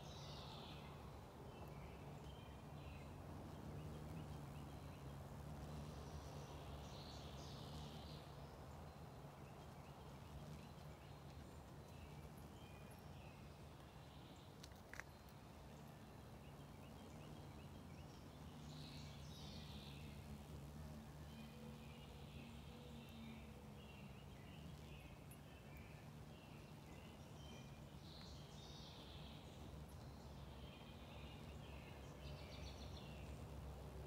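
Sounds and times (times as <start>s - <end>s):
distant birds chirping: 0.0s - 34.0s
steady low hum: 15.5s - 34.0s.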